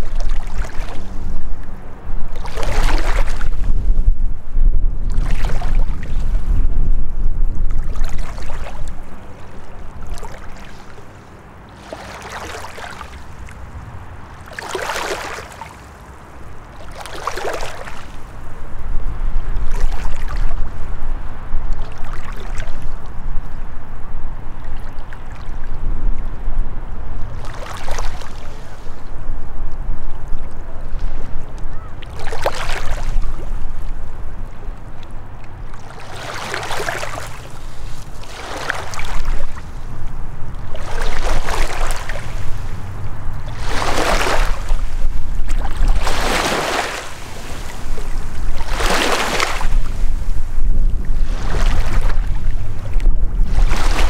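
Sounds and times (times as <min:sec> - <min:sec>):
small waves lapping on rocks: 0:00.0 - 0:01.1, 0:02.4 - 0:03.6, 0:07.8 - 0:13.6, 0:14.4 - 0:18.4, 0:27.4 - 0:28.9, 0:31.7 - 0:33.9, 0:35.7 - 0:39.7, 0:40.6 - 0:42.8, 0:43.5 - 0:50.3, 0:51.2 - 0:54.0
wind buffeting microphone: 0:00.0 - 0:54.0.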